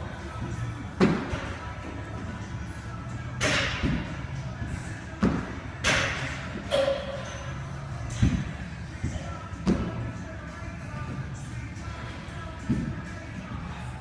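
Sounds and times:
dull thuds on gym floor: 0:05.1 - 0:05.6, 0:08.2 - 0:10.0.

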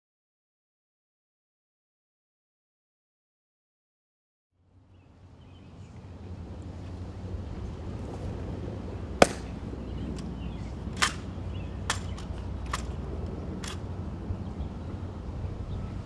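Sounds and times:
low outdoor rumble: 0:04.6 - 0:16.0
rifle slaps and clicks: 0:09.2 - 0:09.5, 0:11.0 - 0:13.0.

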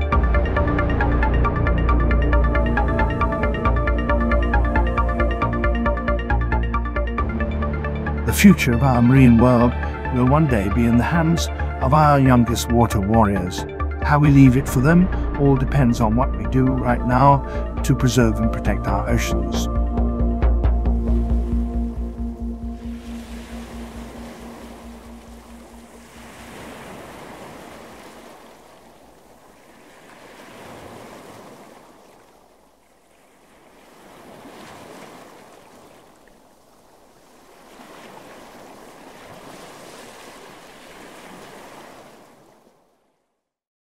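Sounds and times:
held music chord: 0:00.0 - 0:26.5
ocean surf washing in: 0:20.8 - 0:42.7.

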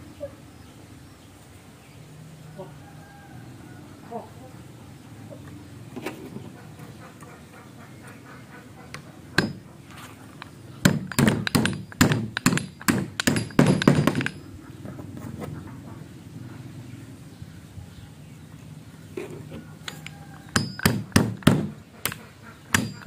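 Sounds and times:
hammer knocking wooden wedge: 0:09.0 - 0:09.7, 0:10.8 - 0:14.4, 0:19.9 - 0:23.0.

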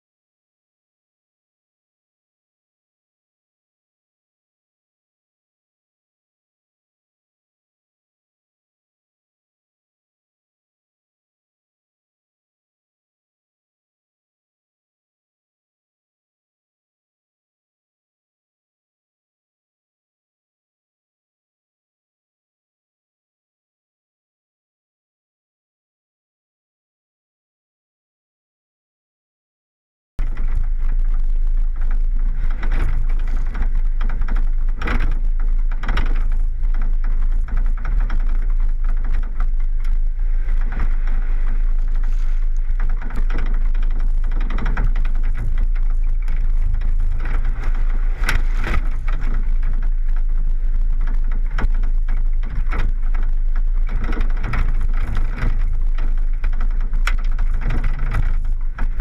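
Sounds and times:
gravel ticks: 0:30.2 - 0:59.0
road noise rumble: 0:30.2 - 0:59.0
wind buffeting: 0:30.2 - 0:59.0.

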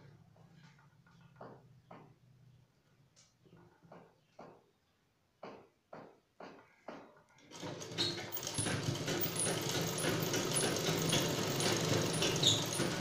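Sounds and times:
sewing machine rattling: 0:07.4 - 0:13.0.

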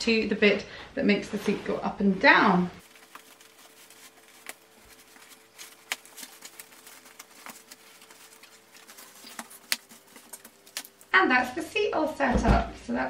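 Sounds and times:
fabric rustling: 0:02.8 - 0:11.1.

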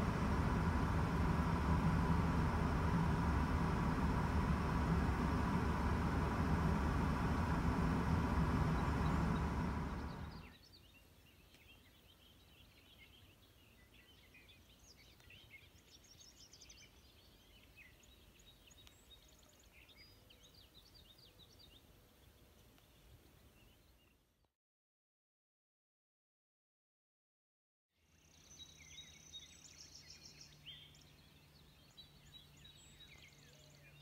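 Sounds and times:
loud rushing noise with rumble: 0:00.0 - 0:10.4
songbirds chirping: 0:00.0 - 0:24.2, 0:28.2 - 0:34.0.

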